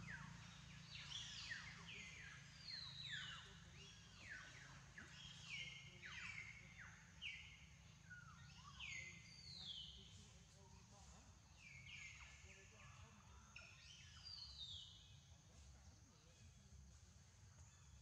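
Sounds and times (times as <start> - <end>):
birds chirping: 0.0 - 10.3.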